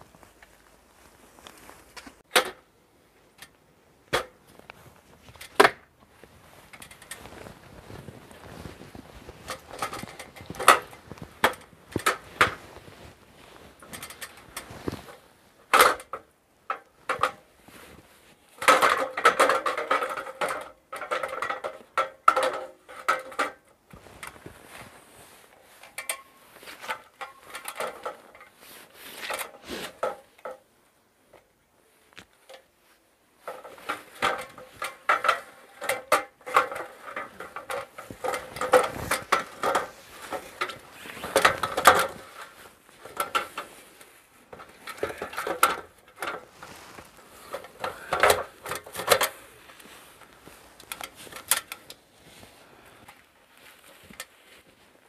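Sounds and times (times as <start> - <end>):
hard objects clicking and knocking: 9.3 - 12.7, 33.5 - 43.7, 44.5 - 46.6, 47.2 - 49.5.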